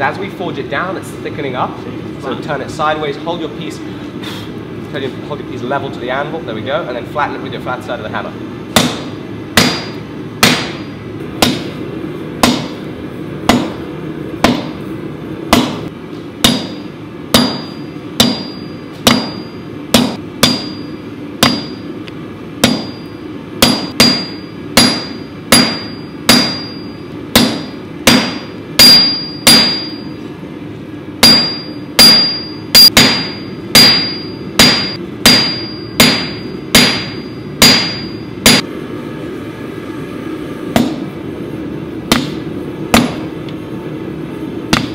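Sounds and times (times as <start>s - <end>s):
steady low hum: 0.0s - 44.9s
hammer striking metal on anvil: 8.8s - 11.8s, 12.4s - 12.9s, 13.5s - 13.8s, 14.4s - 14.8s, 15.5s - 21.8s, 22.6s - 30.1s, 31.2s - 38.7s, 40.8s - 41.1s, 42.1s - 43.3s
anvil ringing: 17.4s - 21.8s, 22.6s - 30.2s, 31.2s - 38.6s.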